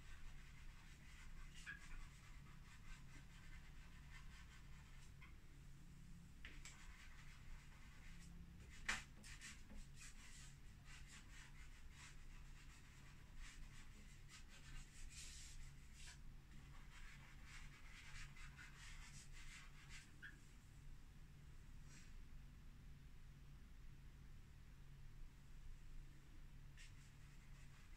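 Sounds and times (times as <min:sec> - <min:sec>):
drawing stick scratching on board: 0:00.0 - 0:05.3.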